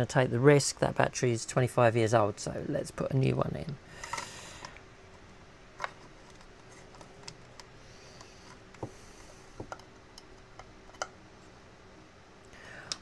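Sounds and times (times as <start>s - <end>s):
small clicks and taps: 5.8s - 11.2s.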